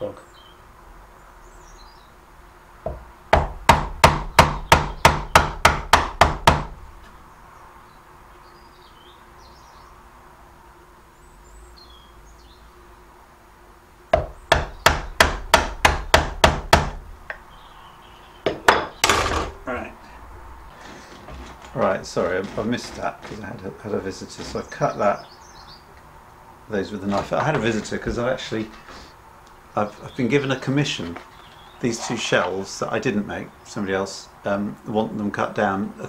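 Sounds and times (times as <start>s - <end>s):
hammer striking chisel in wood: 2.9s - 6.8s, 14.2s - 17.0s.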